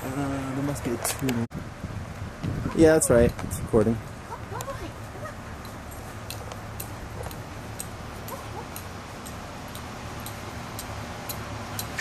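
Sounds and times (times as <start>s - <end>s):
steady low hum: 3.6s - 12.0s.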